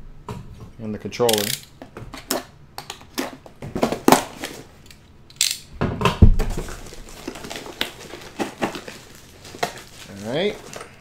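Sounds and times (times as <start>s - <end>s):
toy packaging crinkling: 6.6s - 11.0s.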